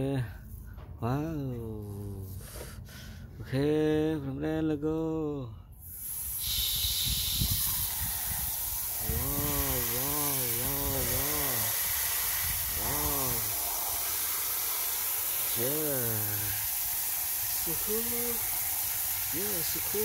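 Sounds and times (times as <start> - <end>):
hose nozzle spraying water: 5.9 - 20.0.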